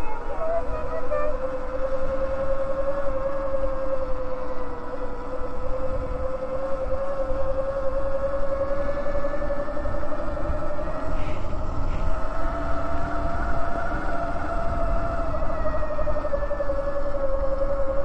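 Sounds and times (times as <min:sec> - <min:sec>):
electric bike motor whining: 0:00.0 - 0:18.0
wind and tyre rumble: 0:00.0 - 0:18.0.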